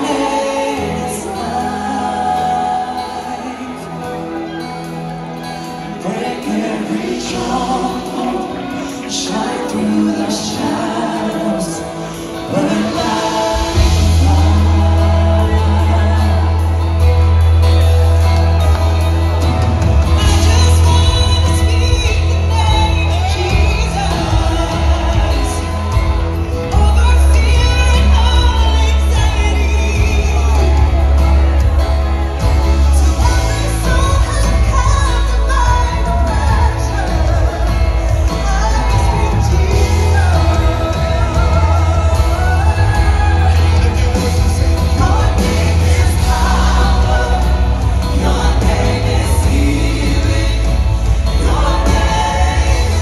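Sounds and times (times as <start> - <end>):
group singing worship song: 0.0 - 3.9, 6.0 - 17.3, 18.4 - 31.0, 33.2 - 53.0
keyboard-led band: 0.0 - 53.0
heavy bass: 12.9 - 53.0.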